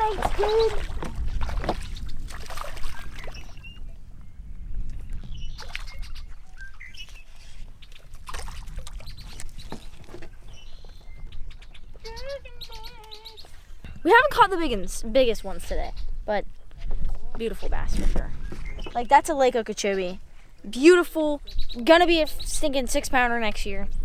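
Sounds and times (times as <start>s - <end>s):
birds chirping: 0.0s - 1.2s, 1.8s - 24.0s
fish splashing in water: 0.0s - 3.6s, 7.9s - 10.0s
wind buffeting microphone: 0.0s - 24.0s.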